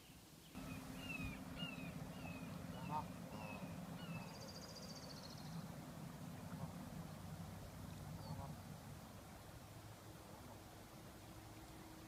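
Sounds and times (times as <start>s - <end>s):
young geese peeping: 0.6s - 4.4s, 8.2s - 8.6s
low steady rumble: 0.6s - 12.0s.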